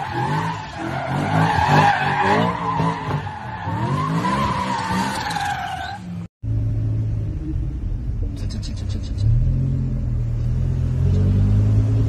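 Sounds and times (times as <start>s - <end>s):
car tyres squealing: 0.0s - 6.2s
car engine revving: 6.4s - 12.0s.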